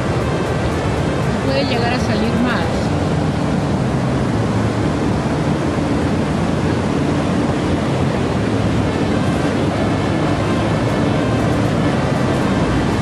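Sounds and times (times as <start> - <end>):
ocean surf breaking: 0.0 - 13.0.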